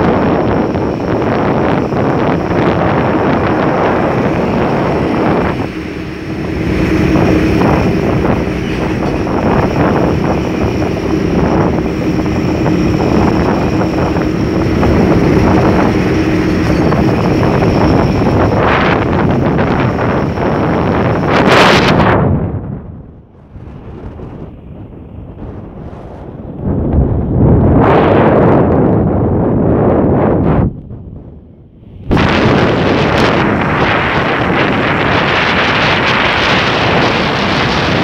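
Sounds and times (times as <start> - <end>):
vehicle engine humming: 0.0 - 21.8
wind rushing over microphone: 0.0 - 38.0.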